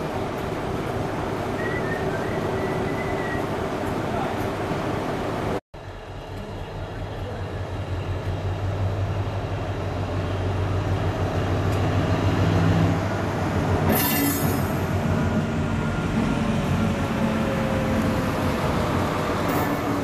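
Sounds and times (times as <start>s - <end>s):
diesel locomotive engine running: 0.0s - 20.0s
short high-pitched squeal: 13.9s - 14.8s.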